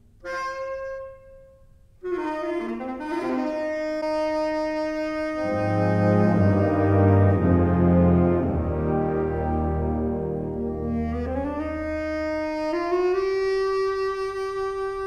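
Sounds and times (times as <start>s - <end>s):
wind band playing chords: 2.0s - 15.0s.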